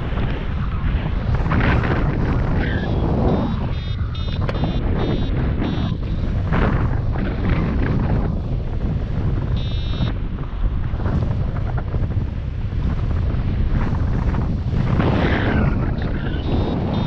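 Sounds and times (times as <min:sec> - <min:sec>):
wind rushing over microphone: 0:00.0 - 0:17.0
short high beep: 0:03.3 - 0:06.0, 0:09.6 - 0:10.1, 0:16.4 - 0:17.0.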